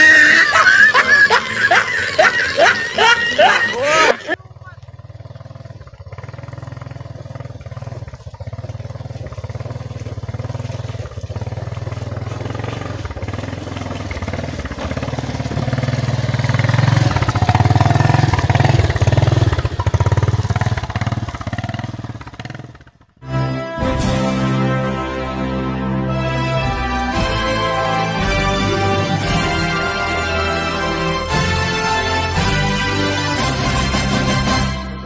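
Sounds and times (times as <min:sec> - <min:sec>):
motor scooter engine passing: 0:00.0 - 0:23.3.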